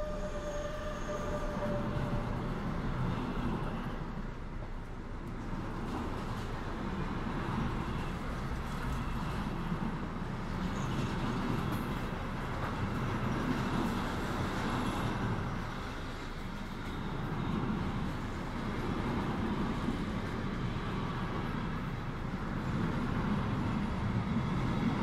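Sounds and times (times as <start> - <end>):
passenger train running rumble: 0.0 - 25.0
passing train: 0.0 - 25.0.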